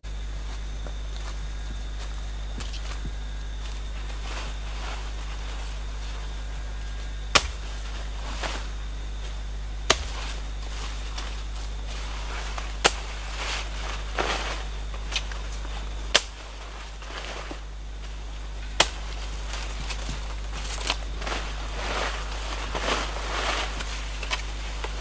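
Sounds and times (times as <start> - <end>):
leaves rustling: 0.1 - 25.0
machete chopping plant stems: 7.3 - 8.7, 9.8 - 11.4, 12.5 - 15.4, 16.1 - 17.6, 18.7 - 21.5.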